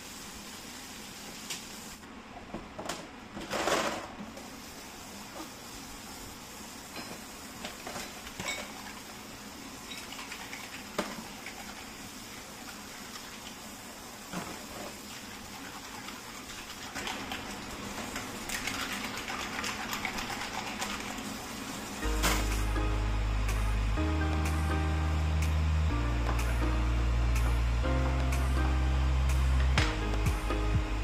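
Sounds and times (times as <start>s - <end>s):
music: 22.0s - 31.0s.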